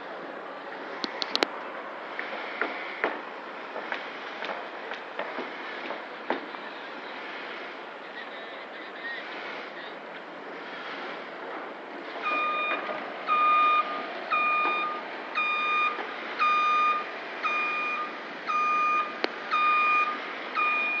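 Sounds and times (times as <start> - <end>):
construction site hiss: 0.0 - 21.0
reversing alarm beeping: 12.2 - 21.0.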